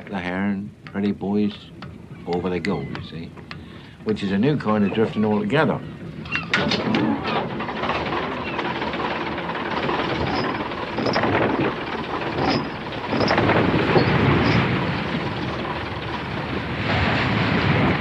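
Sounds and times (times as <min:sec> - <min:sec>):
boat diesel engine throbbing: 0:00.0 - 0:18.0
wind: 0:00.0 - 0:18.0.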